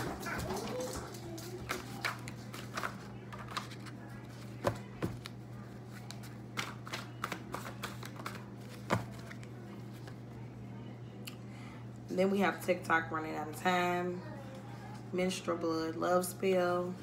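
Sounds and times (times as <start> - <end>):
steady low hum: 0.0 - 17.0
cards shuffling: 1.4 - 10.2.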